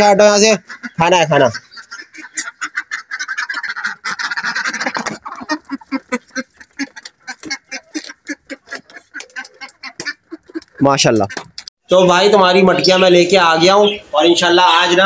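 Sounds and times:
ducks quacking: 0:00.0 - 0:15.0
duck bills clicking in wet food: 0:03.2 - 0:11.7.

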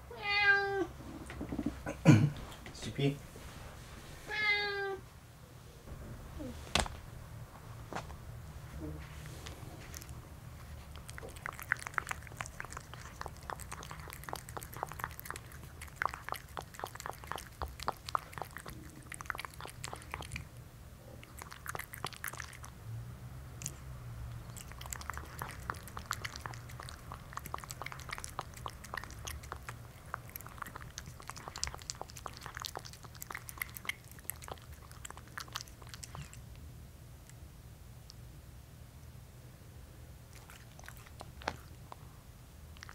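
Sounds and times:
cat chewing wet food: 0:09.2 - 0:38.2, 0:40.3 - 0:42.9.

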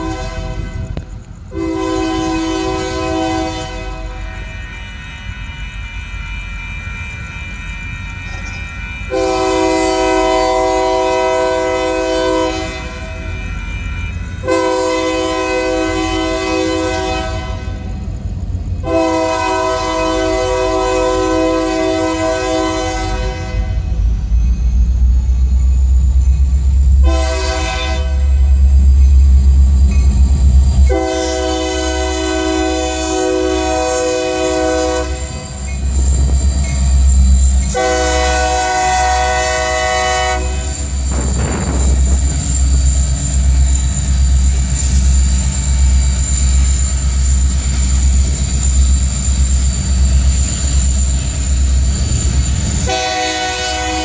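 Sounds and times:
train horn blasts: 0:00.0 - 0:24.1, 0:26.9 - 0:28.9, 0:30.8 - 0:35.8, 0:37.6 - 0:42.4, 0:52.8 - 0:54.0
locomotive engine rumble: 0:00.0 - 0:54.0
train wheels clacking on rails: 0:08.1 - 0:09.3, 0:35.3 - 0:54.0.

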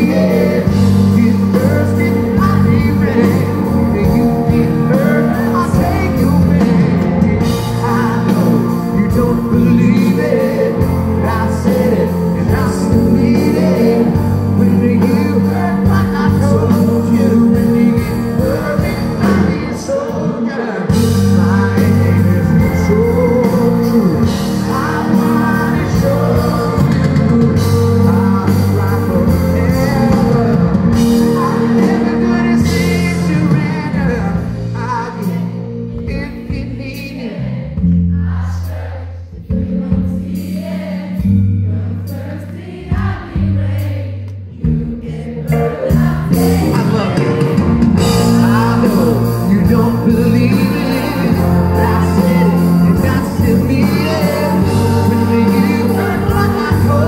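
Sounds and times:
man singing: 0:00.0 - 0:37.8, 0:44.5 - 0:57.0
live pop-rock band: 0:00.0 - 0:57.0.

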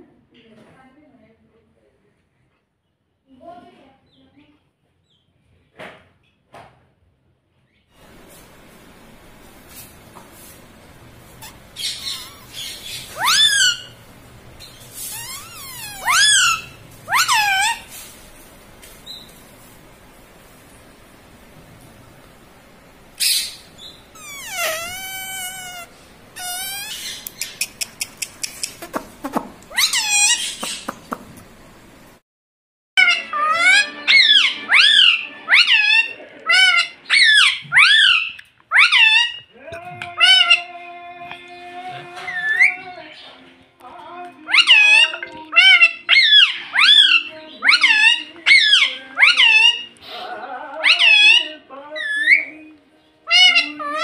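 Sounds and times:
parakeet screech: 0:11.4 - 0:14.0, 0:14.9 - 0:17.9, 0:24.2 - 0:27.2, 0:29.7 - 0:30.6, 0:33.0 - 0:39.4, 0:44.5 - 0:49.9, 0:53.3 - 0:54.0.

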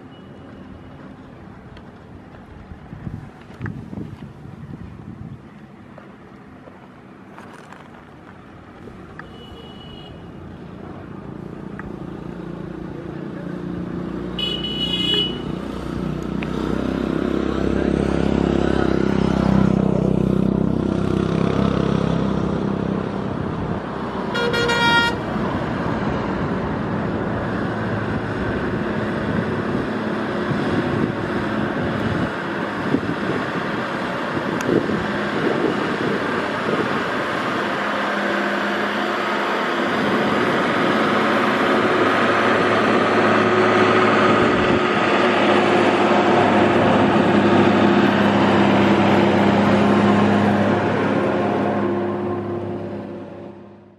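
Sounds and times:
bus and truck engines running: 0:00.0 - 0:53.9
vehicle horn honk: 0:09.2 - 0:10.4, 0:14.4 - 0:15.5, 0:24.3 - 0:25.2.

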